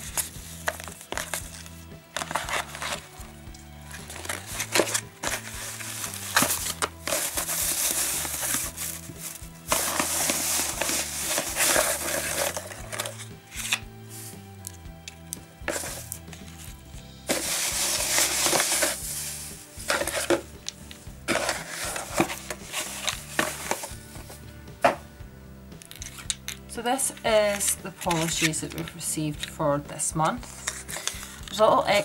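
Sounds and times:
paper packaging rustling: 0:00.0 - 0:03.3, 0:03.9 - 0:14.4, 0:15.7 - 0:16.6, 0:17.3 - 0:24.3, 0:30.5 - 0:32.0
background music: 0:00.0 - 0:32.0.

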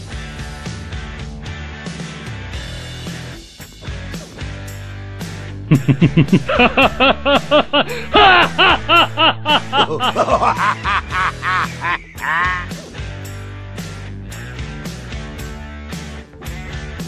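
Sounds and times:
background music: 0:00.0 - 0:17.0
man laughing hard: 0:05.7 - 0:12.8.

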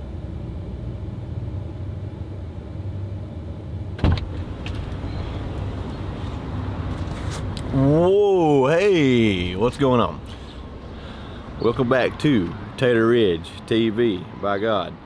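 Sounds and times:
cab door unlatching click: 0:04.0 - 0:05.0
pickup truck idling: 0:07.8 - 0:14.3.

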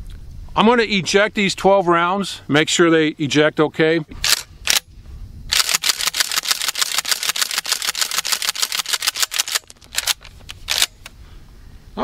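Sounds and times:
shotgun slide clacking: 0:04.2 - 0:04.9, 0:05.5 - 0:11.2.

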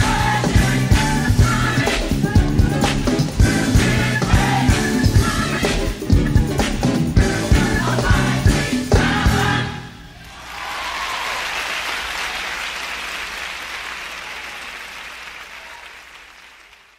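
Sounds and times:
choir and band playing gospel: 0:00.0 - 0:11.4
audience applause: 0:10.2 - 0:16.9.

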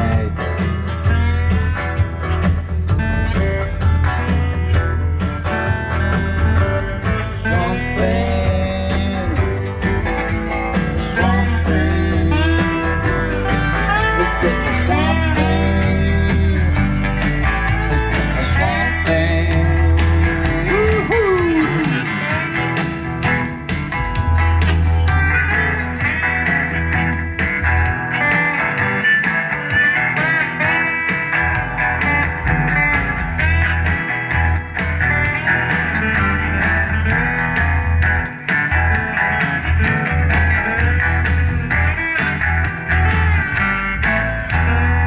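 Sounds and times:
small band playing blues: 0:00.0 - 0:45.0.

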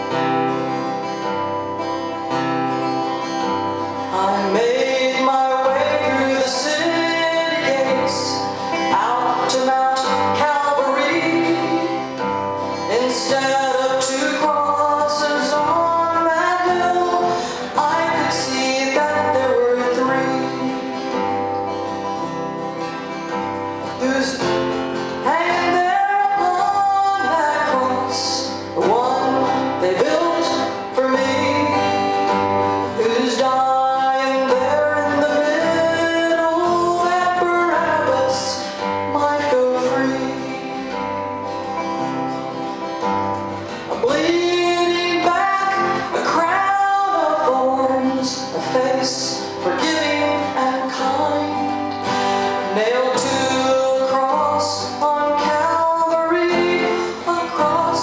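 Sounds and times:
acoustic guitar: 0:00.0 - 0:58.0
woman singing: 0:04.1 - 0:12.2, 0:12.8 - 0:21.2, 0:25.1 - 0:32.3, 0:33.0 - 0:41.1, 0:43.9 - 0:52.0, 0:52.7 - 0:58.0.

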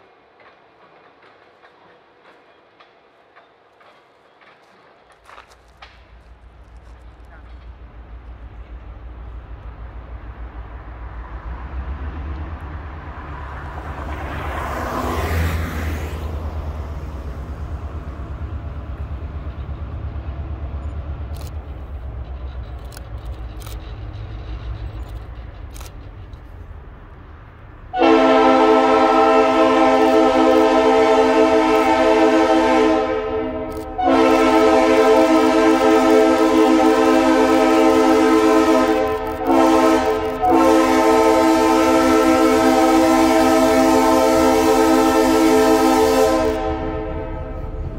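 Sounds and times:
locomotive engine rumble: 0:00.0 - 0:47.9
locomotive air horn blasts: 0:27.9 - 0:47.9.

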